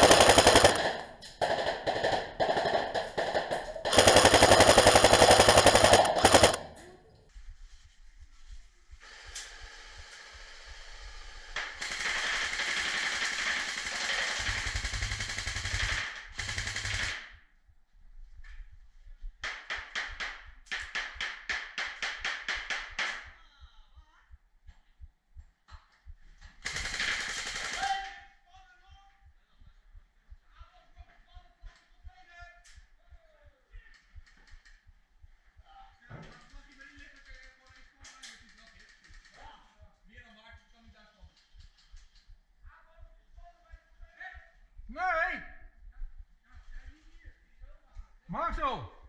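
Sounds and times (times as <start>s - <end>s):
airsoft rifles firing bursts: 0.0s - 6.9s, 11.6s - 17.4s, 26.5s - 28.2s.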